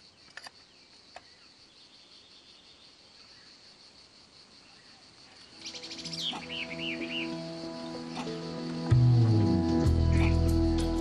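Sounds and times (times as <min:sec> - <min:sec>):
small clicks: 0:00.2 - 0:01.3
birds chirping: 0:04.6 - 0:11.0
high-pitched insect drone: 0:05.5 - 0:11.0
music: 0:05.6 - 0:11.0.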